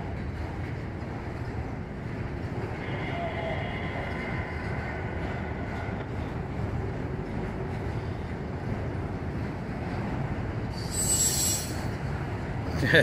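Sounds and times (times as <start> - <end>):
steel wheels rumbling on rail: 0.0 - 13.0
high-pitched squeal: 10.7 - 12.0.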